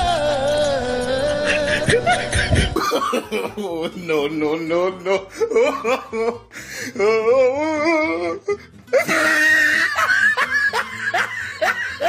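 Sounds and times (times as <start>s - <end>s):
music with wavering vocal: 0.0s - 12.0s
laughter: 1.4s - 4.1s, 8.9s - 12.0s.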